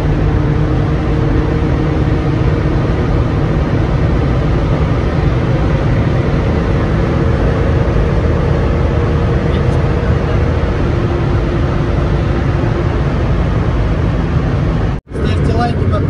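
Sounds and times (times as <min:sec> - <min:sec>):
car engine drone: 0:00.0 - 0:16.0
road and tyre rumble: 0:00.0 - 0:16.0.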